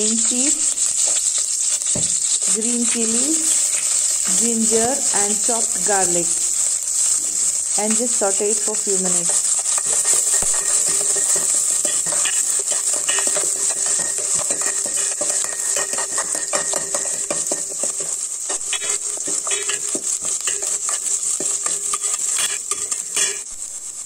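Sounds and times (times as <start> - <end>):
spices sizzling in hot oil: 0.0 - 24.0
ladle scraping and clinking in pot: 9.2 - 23.5.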